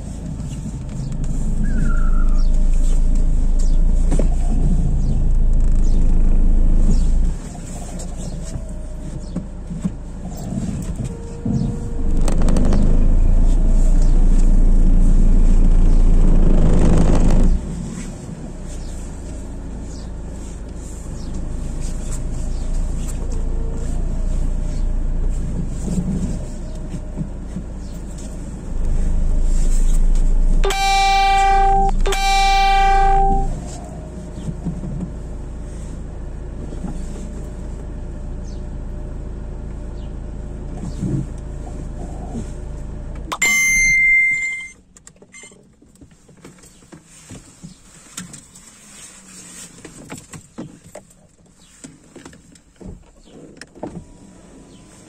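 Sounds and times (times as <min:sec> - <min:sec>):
car engine running: 0:00.0 - 0:44.7
car horn blasts: 0:30.6 - 0:33.6, 0:43.3 - 0:44.8
short high beep: 0:30.6 - 0:33.6, 0:43.3 - 0:44.8.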